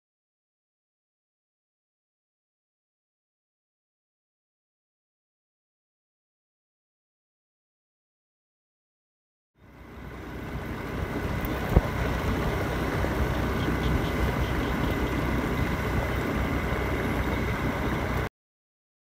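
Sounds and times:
vehicle running rumble: 9.6 - 18.3.

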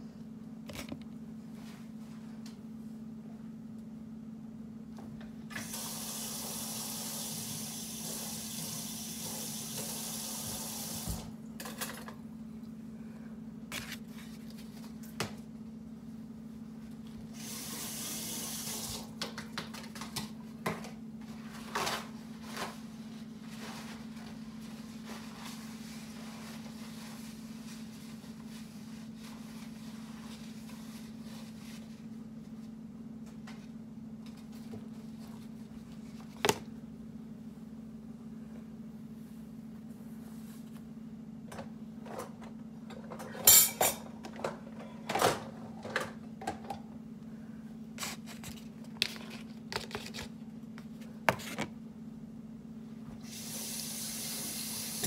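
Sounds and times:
steady low hum: 11.3 - 17.4, 19.1 - 53.2.

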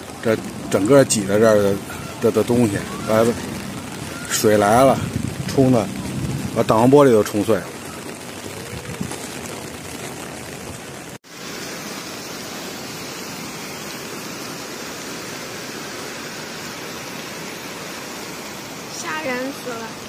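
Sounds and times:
flood water rushing: 0.0 - 20.0.

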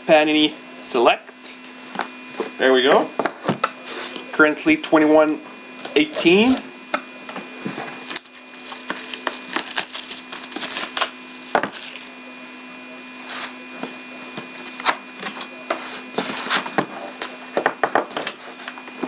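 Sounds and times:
plastic wrap crinkling: 7.4 - 12.3.

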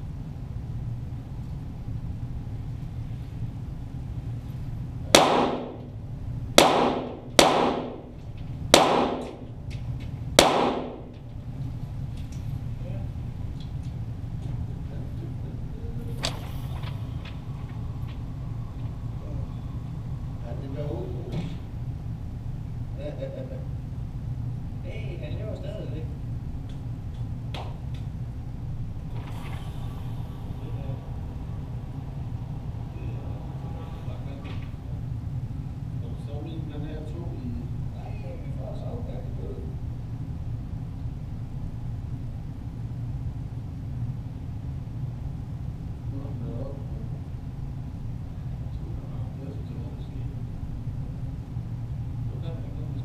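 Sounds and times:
low mechanical rumble: 0.0 - 53.0
pistol shots with echo: 5.1 - 5.9, 6.6 - 9.5, 10.4 - 11.1.

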